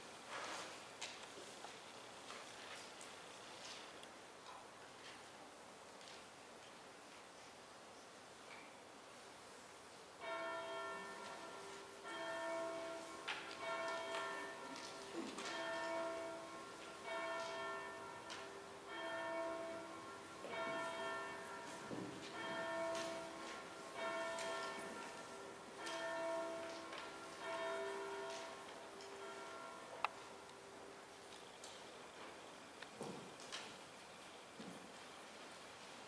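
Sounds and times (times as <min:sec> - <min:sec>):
church bells ringing: 0:10.2 - 0:31.2.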